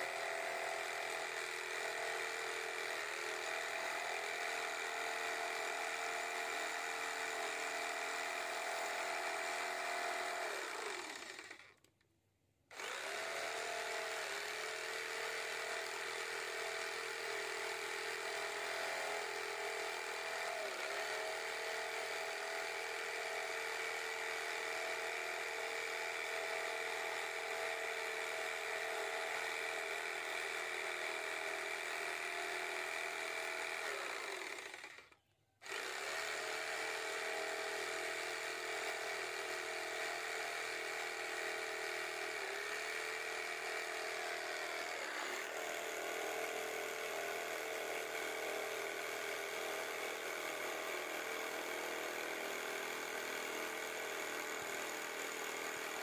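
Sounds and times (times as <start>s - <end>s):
electric jigsaw cutting plywood: 0.0s - 11.9s, 12.7s - 56.0s.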